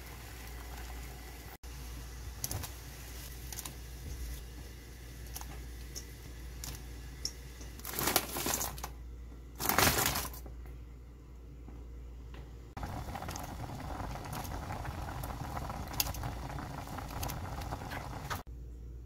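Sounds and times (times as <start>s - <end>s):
ingredients rustling into pot: 7.7s - 8.9s
sauce simmering in pot: 12.8s - 18.5s.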